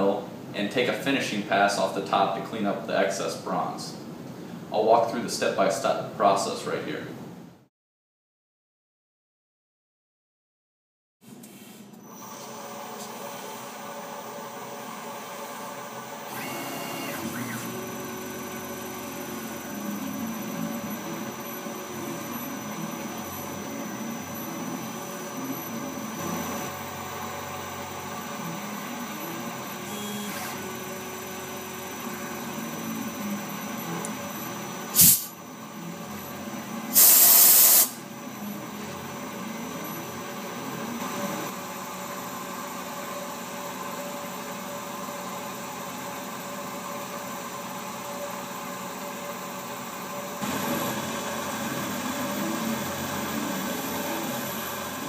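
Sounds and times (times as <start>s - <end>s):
axis motors gliding in pitch: 12.0s - 36.9s, 50.4s - 55.0s
mill spindle tone: 12.0s - 55.0s
loud hiss: 34.9s - 35.4s, 36.9s - 38.0s.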